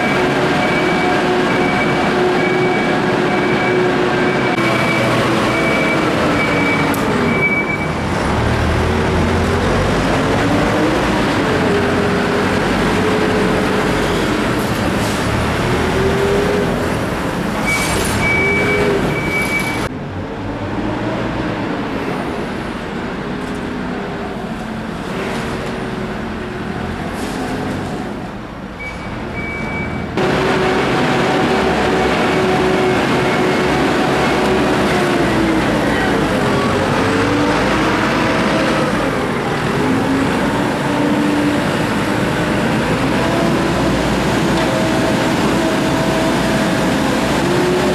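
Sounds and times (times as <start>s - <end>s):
high beep: 0.0s - 8.0s
diesel engines revving in tunnel: 0.0s - 47.9s.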